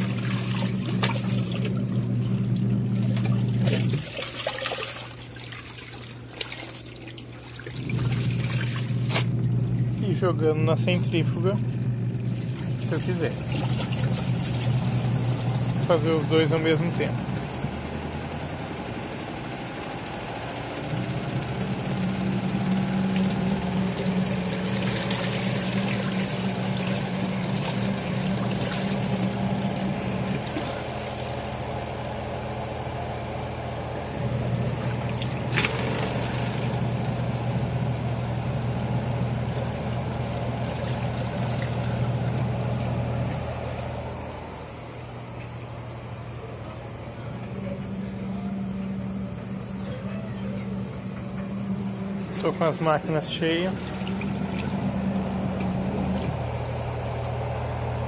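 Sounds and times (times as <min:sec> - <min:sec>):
water churning and splashing: 0:00.0 - 0:10.2, 0:10.8 - 0:18.6, 0:21.3 - 0:32.2, 0:34.2 - 0:37.3, 0:38.9 - 0:43.0, 0:52.2 - 0:58.0
washing machine motor humming: 0:00.0 - 0:58.0.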